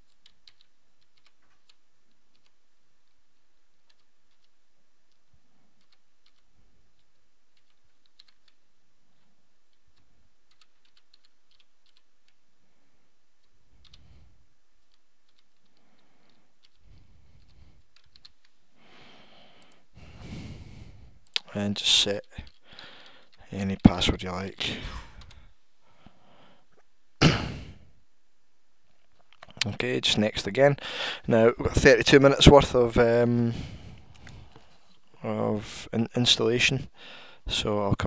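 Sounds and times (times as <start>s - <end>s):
keyboard typing: 0.0s - 12.4s, 13.4s - 14.1s, 14.8s - 18.6s, 22.2s - 23.9s, 25.1s - 25.4s
steady low hiss: 0.0s - 38.0s.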